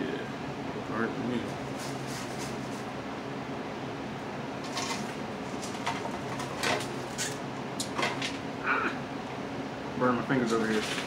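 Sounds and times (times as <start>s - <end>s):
clicks and rustles of fries: 4.6s - 8.4s, 10.4s - 11.0s.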